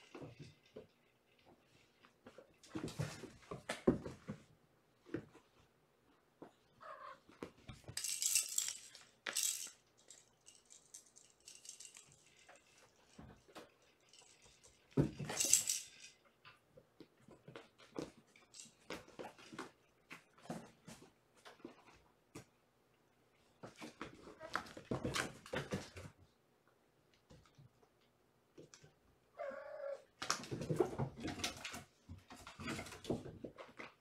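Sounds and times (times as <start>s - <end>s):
kittens scuffling: 0.0s - 5.7s, 30.2s - 34.0s.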